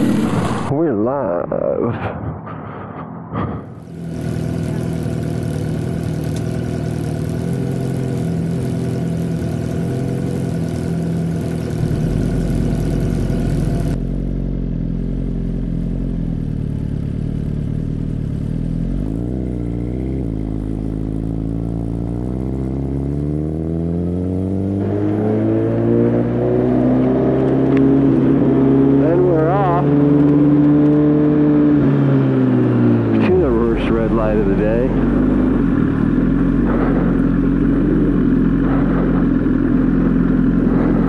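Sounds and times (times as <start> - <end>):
motorcycle engine revving: 0.0 - 0.7, 3.7 - 41.0
motorcycle engine idling: 3.8 - 23.6, 32.6 - 41.0.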